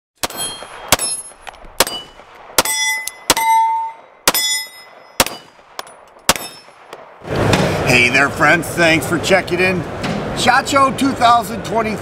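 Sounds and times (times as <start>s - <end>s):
steel targets ringing: 0.2s - 6.9s
pistol shots: 0.2s - 7.2s.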